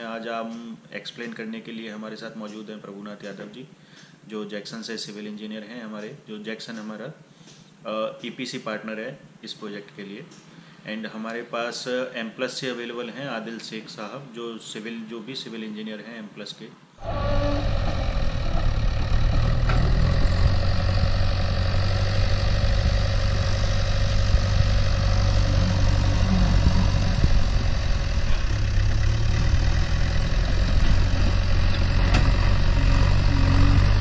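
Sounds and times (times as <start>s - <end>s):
diesel engine running: 17.0s - 34.0s.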